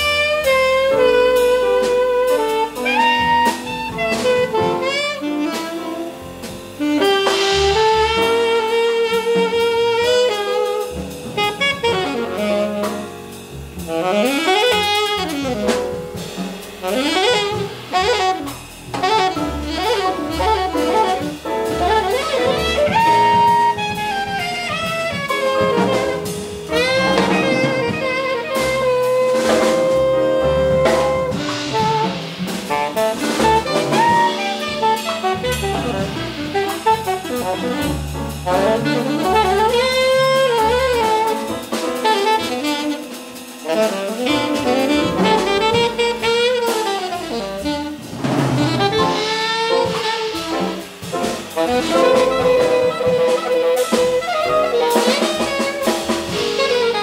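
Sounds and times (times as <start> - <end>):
alto saxophone solo: 0.0 - 57.0
double bass line: 0.0 - 57.0
drum kit with cymbals: 0.0 - 57.0.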